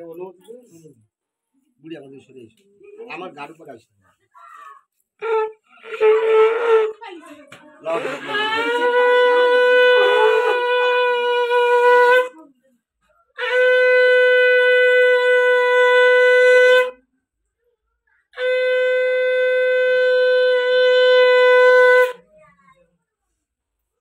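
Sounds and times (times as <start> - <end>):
conch shell blasts: 7.9 - 12.4, 13.4 - 17.0.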